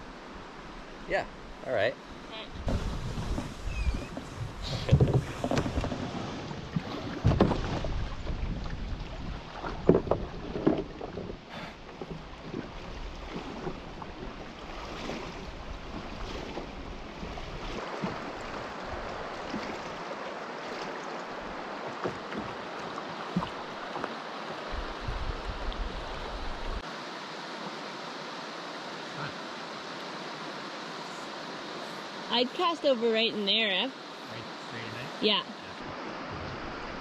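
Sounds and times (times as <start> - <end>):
river water rushing: 0.0 - 37.0.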